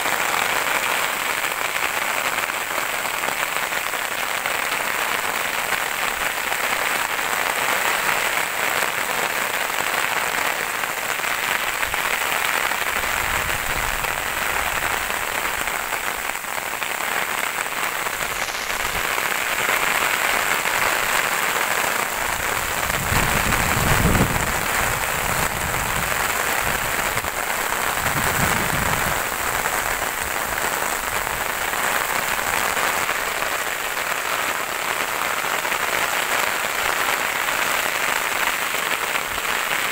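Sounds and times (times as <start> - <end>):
steady rain hiss: 0.0 - 39.9.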